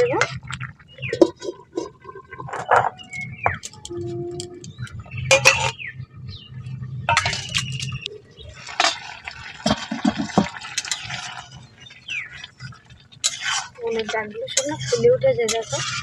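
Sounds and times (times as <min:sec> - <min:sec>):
curry bubbling: 0:00.0 - 0:03.8, 0:04.4 - 0:16.0
metal lid clinking: 0:05.3 - 0:05.8.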